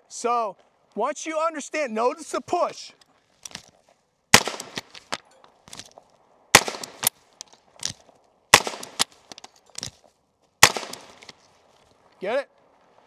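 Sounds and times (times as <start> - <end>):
rifle gunshots: 4.3 - 5.0, 6.5 - 7.1, 8.5 - 9.1, 10.6 - 11.2.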